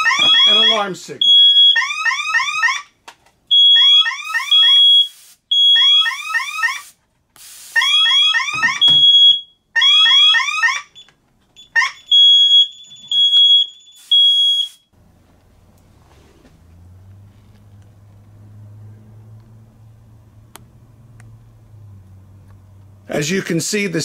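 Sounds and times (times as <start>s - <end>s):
steady high alarm beep: 0.0s - 1.9s, 3.5s - 6.8s, 7.8s - 14.9s.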